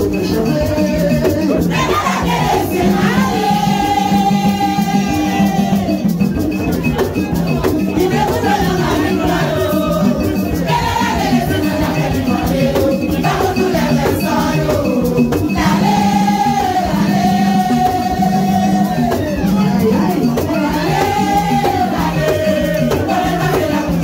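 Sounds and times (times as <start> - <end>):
group singing: 0.0 - 24.0
steady drumming: 0.2 - 24.0.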